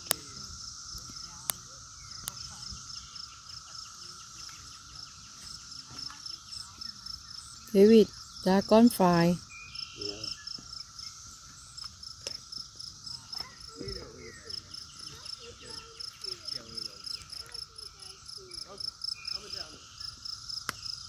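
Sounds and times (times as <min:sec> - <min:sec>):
cicadas droning: 0:00.0 - 0:21.0.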